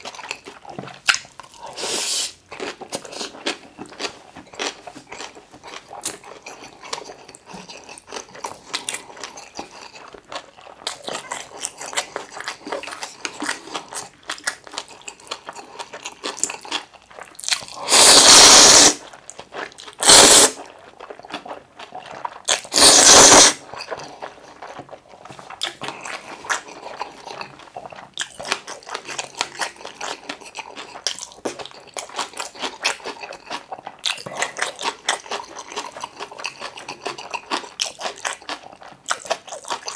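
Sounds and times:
wet chewing with mouth clicks: 0.0s - 39.9s
noodle slurps: 1.7s - 2.4s, 17.8s - 19.0s, 20.0s - 20.7s, 22.5s - 24.2s.

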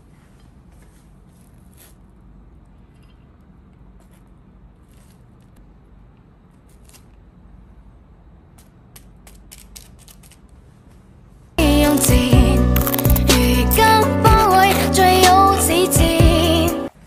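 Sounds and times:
loud music: 11.6s - 16.9s.

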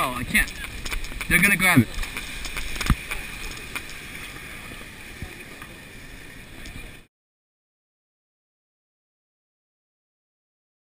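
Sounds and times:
outdoor background noise: 0.0s - 7.1s.

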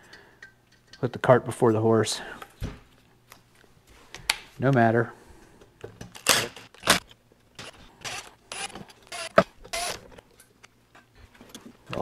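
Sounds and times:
tools and metal parts handled: 0.0s - 1.2s.

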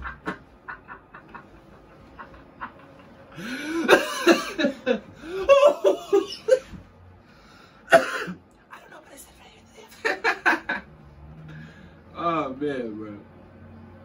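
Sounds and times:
man laughing hard: 0.0s - 6.8s.

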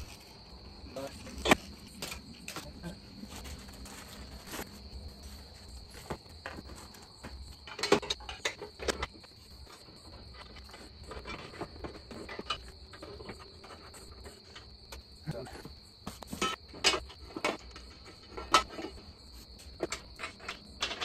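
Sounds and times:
metallic clinks and knocks: 6.4s - 14.7s, 19.7s - 21.0s.

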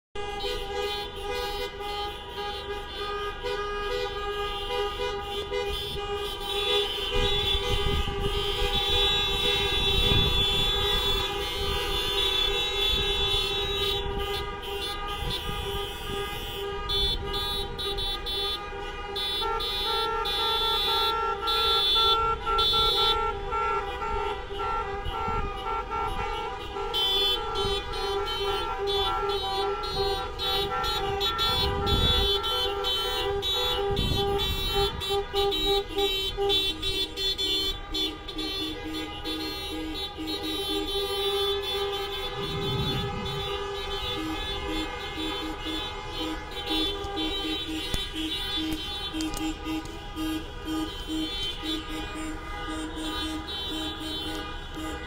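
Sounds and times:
car horns honking: 0.2s - 55.0s
rapid horn beeping: 0.2s - 55.0s
car engines passing slowly: 41.3s - 48.1s.

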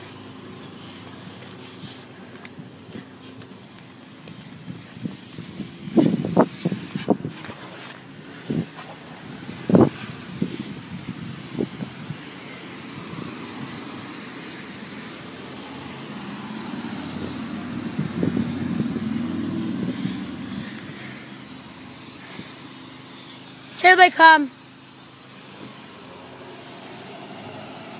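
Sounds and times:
vehicle passing: 11.4s - 22.4s, 25.8s - 27.9s.

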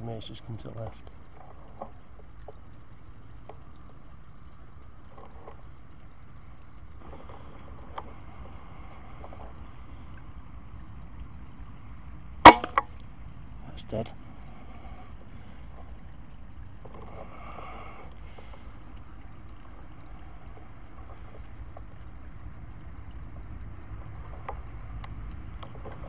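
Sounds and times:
low background rumble: 0.0s - 26.0s
air rifle shot: 12.4s - 12.8s.

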